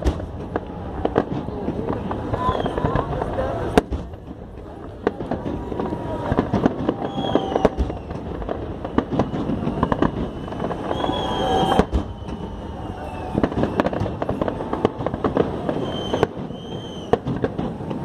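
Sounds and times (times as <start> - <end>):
fireworks bangs and crackling: 0.0 - 18.0
high falling whistle tones: 8.9 - 14.6, 15.8 - 17.2.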